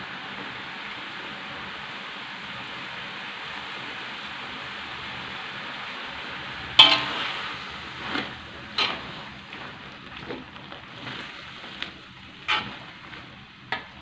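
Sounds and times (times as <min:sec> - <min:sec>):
greens sizzling in a wok: 0:00.0 - 0:14.0
metal spatula knocking on wok: 0:06.8 - 0:07.1.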